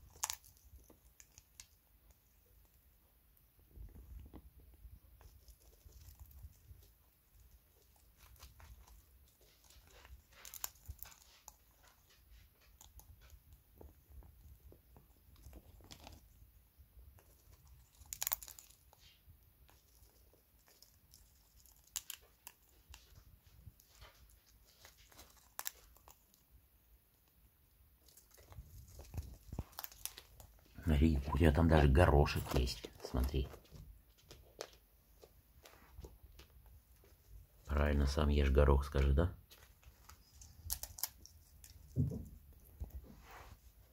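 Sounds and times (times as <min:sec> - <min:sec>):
parrot cracking seed husks: 0:00.0 - 0:01.8, 0:17.2 - 0:23.2, 0:23.8 - 0:26.4, 0:28.0 - 0:30.8, 0:39.5 - 0:42.1.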